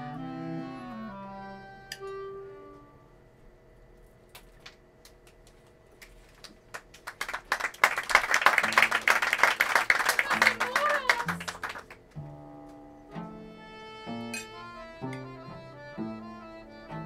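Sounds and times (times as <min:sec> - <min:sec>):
accordion: 0:00.0 - 0:03.2, 0:13.0 - 0:17.0
cello: 0:13.0 - 0:17.0.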